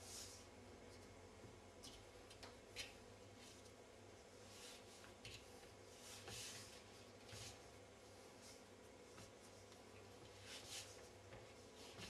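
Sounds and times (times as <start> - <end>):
dough squishing being kneaded: 0.1 - 12.0.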